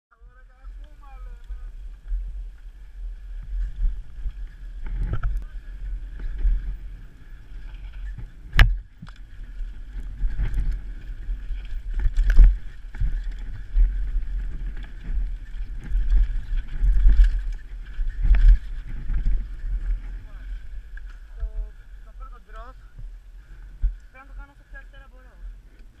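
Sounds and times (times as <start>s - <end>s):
wind rumbling on microphone: 0.1s - 26.0s
bike knocking and rattling: 1.0s - 21.7s.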